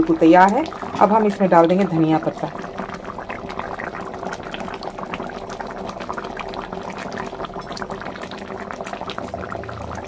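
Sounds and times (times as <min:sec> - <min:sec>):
curry bubbling and popping: 0:00.0 - 0:10.0.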